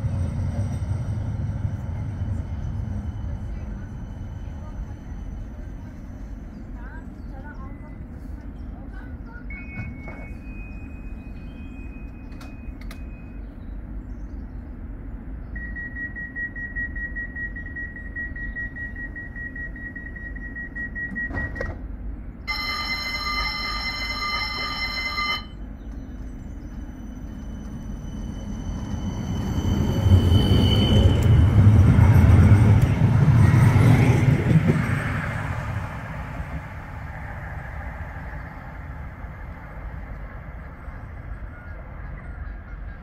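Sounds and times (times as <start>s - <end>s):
tram rumbling: 0.0s - 43.0s
electronic warning tone: 22.5s - 25.6s.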